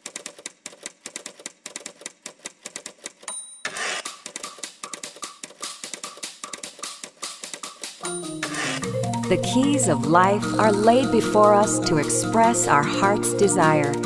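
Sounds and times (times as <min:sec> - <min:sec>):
typewriter keys clattering: 0:00.0 - 0:08.0
typewriter bell ring: 0:03.2 - 0:04.3.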